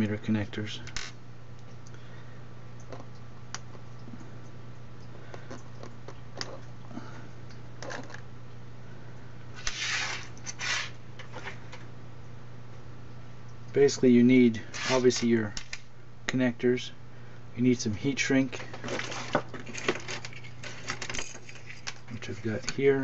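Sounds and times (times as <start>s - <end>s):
wires clicking and rustling: 2.8s - 4.3s, 5.0s - 8.3s, 9.6s - 11.9s, 14.6s - 15.9s, 18.4s - 23.0s.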